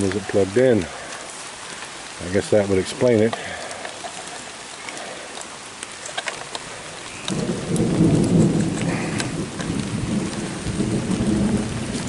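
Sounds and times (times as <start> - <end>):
rain falling: 0.0 - 12.0
thunder rumbling: 6.7 - 12.0.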